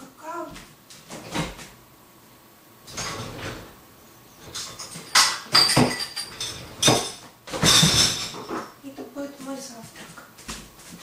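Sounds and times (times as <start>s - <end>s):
dishes and cutlery clattering: 4.4s - 8.8s.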